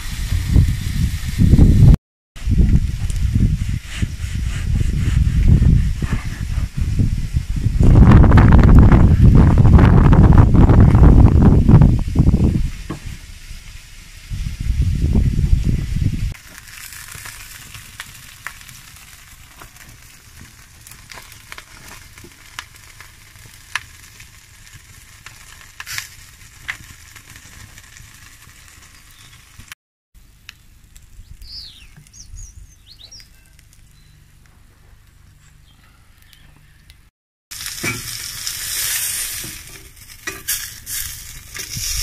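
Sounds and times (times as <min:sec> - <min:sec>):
buns sizzling in a pan: 0:16.3 - 0:29.8, 0:37.5 - 0:42.0
sharp pops and crackles: 0:16.4 - 0:35.4, 0:36.2 - 0:42.0
bird chirps: 0:31.2 - 0:34.3, 0:35.1 - 0:37.0.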